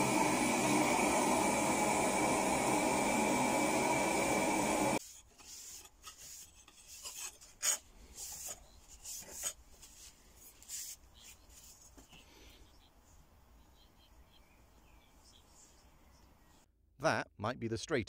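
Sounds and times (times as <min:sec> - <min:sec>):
hot blade hissing in quench tank: 0:00.0 - 0:05.0
paper towel rubbing blade: 0:04.3 - 0:11.0.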